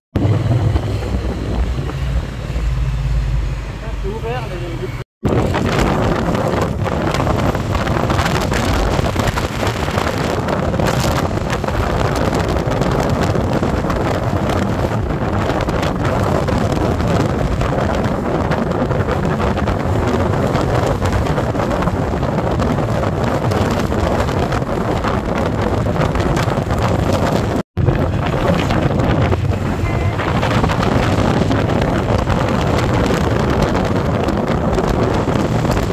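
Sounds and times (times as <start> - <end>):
road noise: 0.1 - 35.9
wind noise on microphone: 0.1 - 35.9
motorcycle engine: 27.3 - 35.9.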